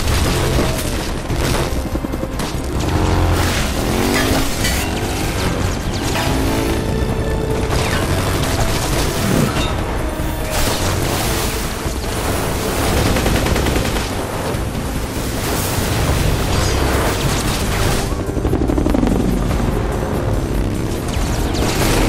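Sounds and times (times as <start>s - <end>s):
machine-gun fire: 0.0s - 6.7s, 12.0s - 19.2s
motorcycle engine revving: 0.0s - 10.0s
orchestral music: 0.0s - 22.0s.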